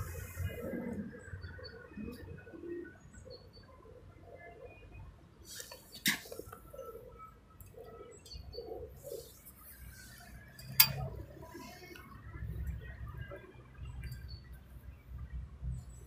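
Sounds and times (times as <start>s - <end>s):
birds cooing: 0.0s - 4.8s, 6.3s - 10.5s.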